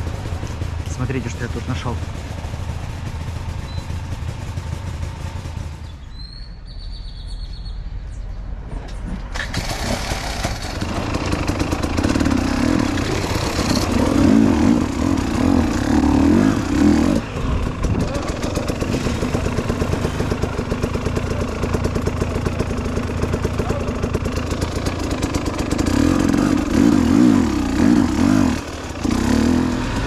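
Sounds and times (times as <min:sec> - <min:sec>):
dirt bike engines: 0:00.0 - 0:30.0
bird chirp: 0:03.6 - 0:04.1, 0:05.7 - 0:08.6.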